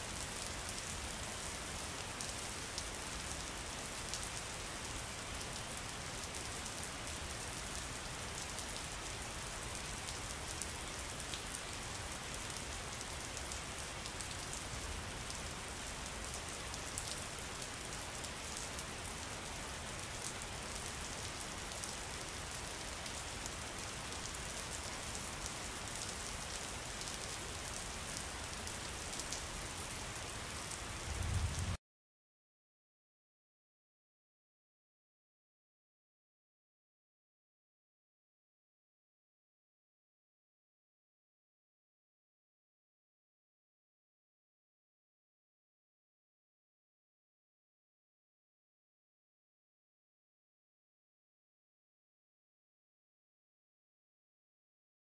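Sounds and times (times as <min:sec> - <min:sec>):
steady rain falling: 0:00.0 - 0:31.8.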